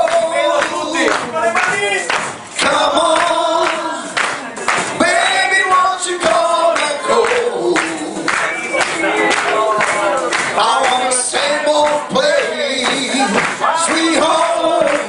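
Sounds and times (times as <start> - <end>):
person singing: 5.0 - 15.0.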